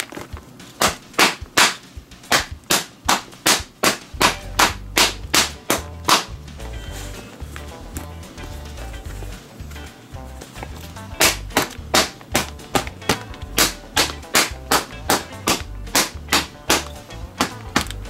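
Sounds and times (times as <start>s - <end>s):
background music: 0.0s - 18.0s
leather gloves smacking together: 10.6s - 18.0s.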